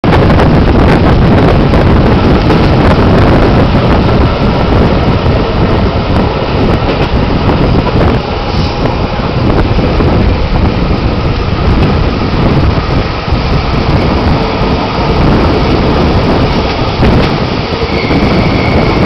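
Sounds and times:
train wheels rumbling on rails: 0.0 - 19.0
wind buffeting microphone: 0.0 - 19.0.

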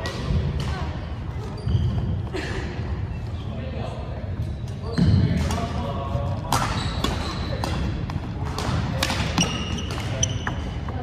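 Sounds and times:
shoes squeaking on wooden floor: 1.4 - 2.4.

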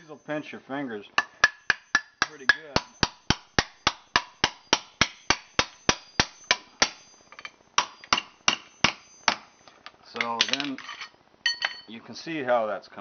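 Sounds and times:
hammer striking steel rod: 1.2 - 9.5.

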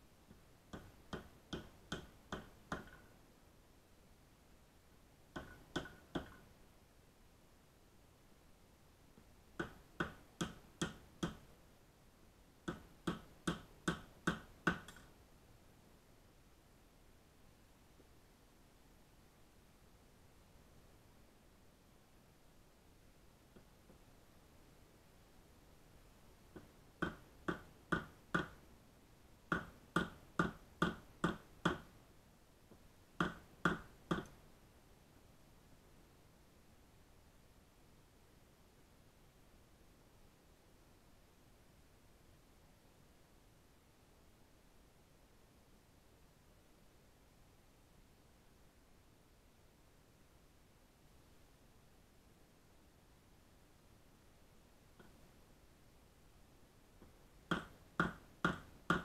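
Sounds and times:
hammer knocking on wooden handle: 0.7 - 3.1, 5.3 - 6.4, 9.6 - 11.4, 12.7 - 15.1, 26.5 - 28.6, 29.5 - 31.9, 33.2 - 34.4, 57.5 - 59.0.

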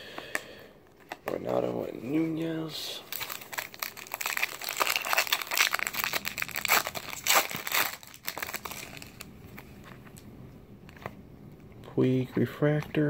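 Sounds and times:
soft rustling of cards: 0.2 - 13.0
foil wrapper tearing and crinkling: 3.0 - 9.3.

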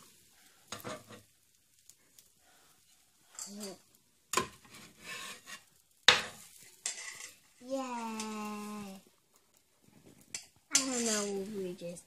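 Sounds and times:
spatula scraping griddle: 0.6 - 1.4, 2.2 - 9.0, 9.8 - 11.6.

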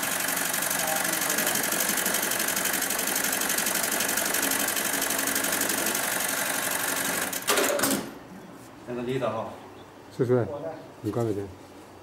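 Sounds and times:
industrial sewing machine stitching: 0.0 - 8.1.

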